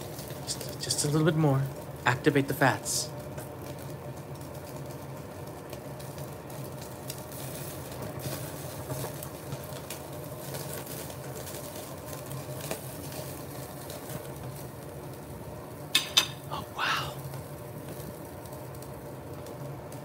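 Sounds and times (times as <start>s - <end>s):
fat crackling and popping: 0.0s - 20.0s
meat sizzling on a grill: 0.0s - 20.0s
steady low hum: 14.8s - 18.5s.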